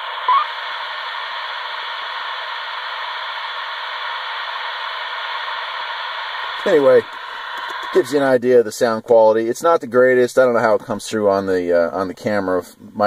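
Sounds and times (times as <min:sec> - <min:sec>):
radio static hiss: 0:00.0 - 0:13.0
radio voice transmission: 0:06.6 - 0:11.0.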